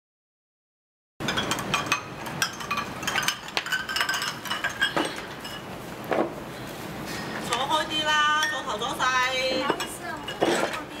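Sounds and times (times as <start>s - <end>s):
ceramic dishes clinking: 1.2s - 6.3s, 7.5s - 11.0s.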